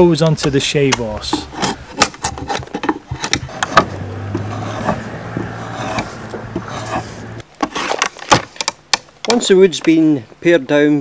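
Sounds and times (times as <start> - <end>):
draw knife scraping wood: 0.9 - 8.8.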